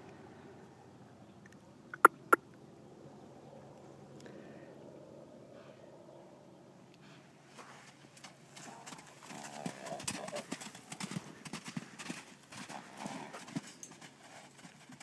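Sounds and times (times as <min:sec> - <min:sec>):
hoofbeats on soft sand: 0:07.0 - 0:15.0.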